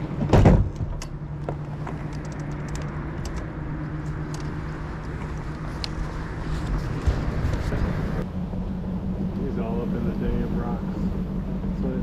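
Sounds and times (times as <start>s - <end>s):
outboard motor idling: 3.6s - 12.0s.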